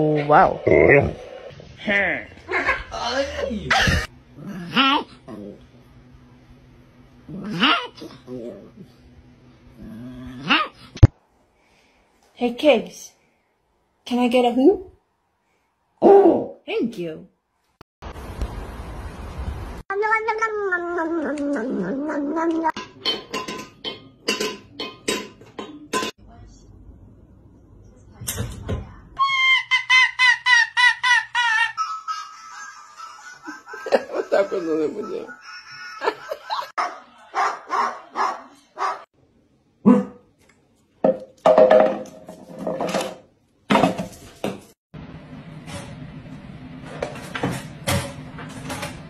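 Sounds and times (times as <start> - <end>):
cat meowing: 19.9 - 22.8
metal bowl clinking: 22.8 - 26.2
dog barking loudly: 36.8 - 39.0.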